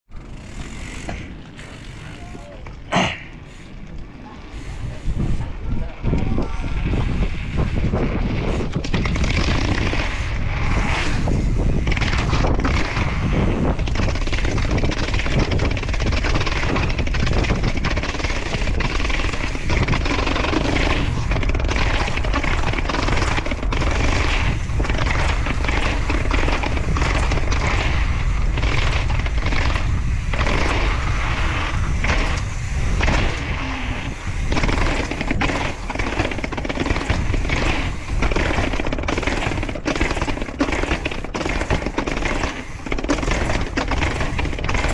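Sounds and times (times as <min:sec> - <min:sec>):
bike rattling down concrete stairs: 0:00.1 - 0:03.2, 0:34.6 - 0:44.9
wind rumbling on microphone: 0:00.1 - 0:44.9.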